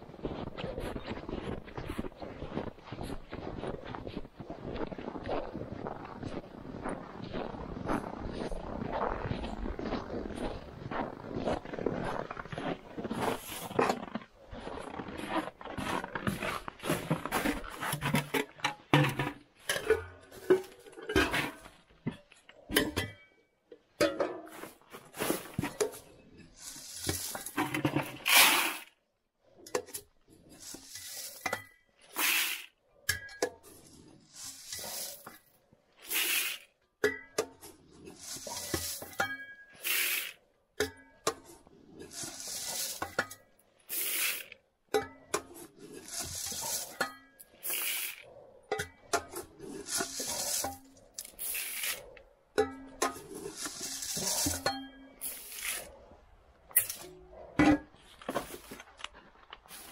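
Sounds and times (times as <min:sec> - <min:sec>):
can knocking and scraping: 0:26.8 - 0:28.9
corn kernels pouring into plastic bucket: 0:28.2 - 0:28.9, 0:32.2 - 0:32.7, 0:36.1 - 0:36.6, 0:47.6 - 0:48.2, 0:49.9 - 0:50.6.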